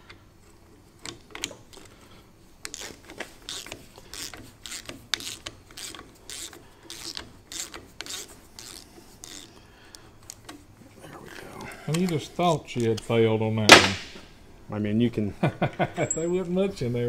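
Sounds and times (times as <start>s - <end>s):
hand ratchet clicking: 2.6s - 10.5s.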